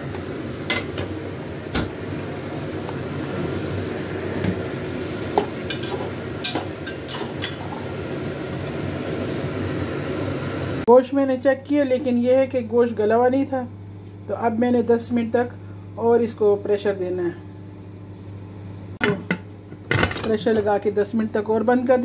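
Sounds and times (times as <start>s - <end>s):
steady background hum: 0.0s - 22.0s
metal kitchenware clinking: 5.6s - 7.8s.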